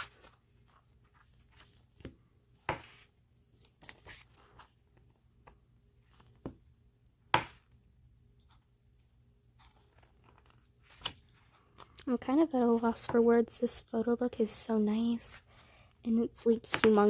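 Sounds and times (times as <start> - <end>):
book pages turning: 0.0 - 6.6, 9.5 - 12.0.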